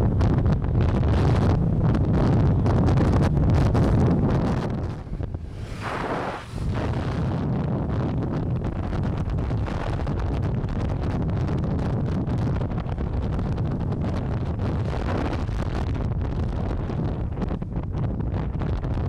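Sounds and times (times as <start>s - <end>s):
wind rush on microphone: 0.0s - 19.0s
scooter engine and tyre noise: 0.1s - 11.0s.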